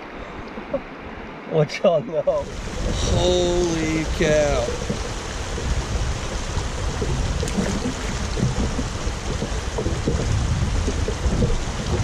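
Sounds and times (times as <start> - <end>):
river water rushing over rocks: 2.1 - 12.0
wind buffeting the microphone: 2.4 - 12.0.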